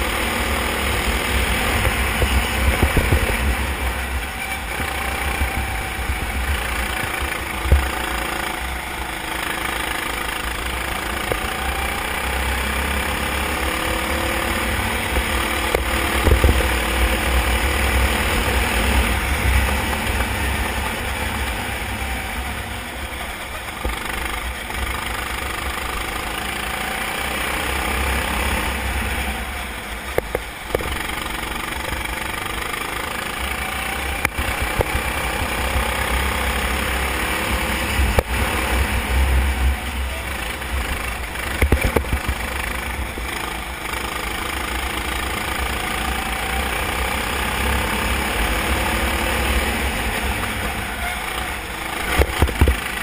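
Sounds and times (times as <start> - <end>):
kart engine running: 0.0 - 53.0
sharp knocks: 1.8 - 3.6, 15.1 - 17.1, 52.0 - 53.0.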